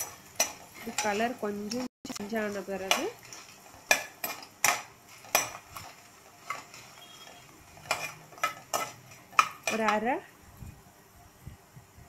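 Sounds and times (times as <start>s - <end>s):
steel spoon clinking in pan: 0.0s - 1.3s, 2.8s - 10.0s
spices sizzling in oil: 0.0s - 10.8s.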